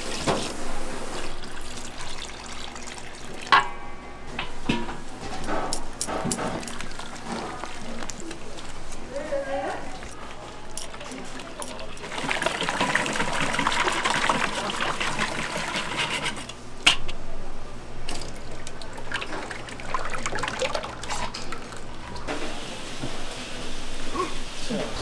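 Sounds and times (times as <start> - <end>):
oil bubbling in deep fryer: 0.0 - 3.7, 5.5 - 9.1, 10.8 - 16.0, 18.0 - 24.0.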